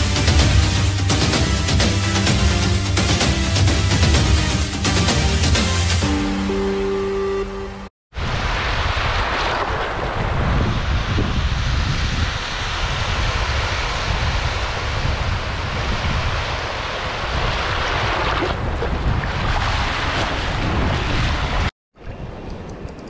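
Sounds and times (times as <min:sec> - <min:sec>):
wind buffeting microphone: 0:08.2 - 0:23.0.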